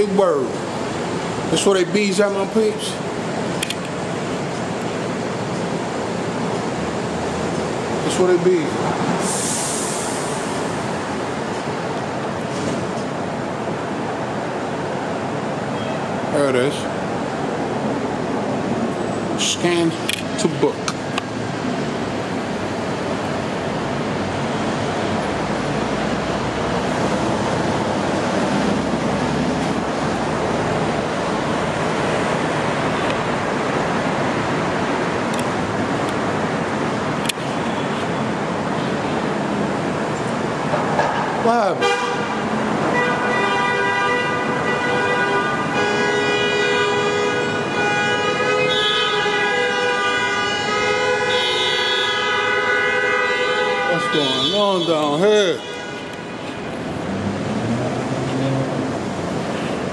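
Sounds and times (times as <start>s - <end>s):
city street traffic noise: 0.0s - 59.9s
rushing background noise: 0.0s - 59.9s
sharp click: 3.6s - 3.9s.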